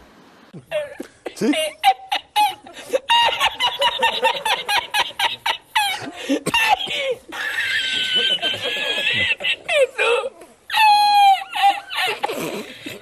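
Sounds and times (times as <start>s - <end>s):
man laughing hard: 0.6s - 10.1s.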